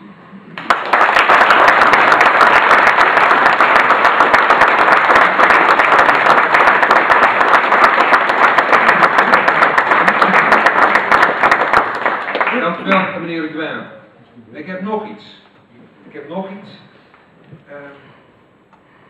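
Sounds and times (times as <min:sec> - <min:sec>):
crowd applauding: 0:00.6 - 0:13.1.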